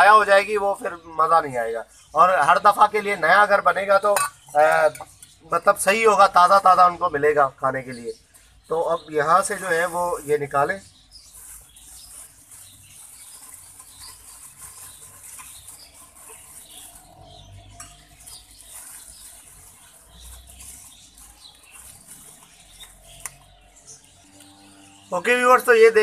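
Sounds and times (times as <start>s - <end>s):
plastic bags rustling and crinkling: 7.6s - 26.0s.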